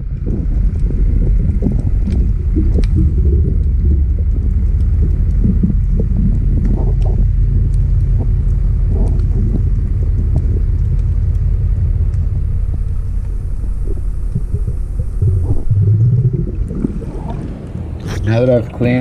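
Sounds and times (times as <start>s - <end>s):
low underwater rumble: 0.0s - 19.0s.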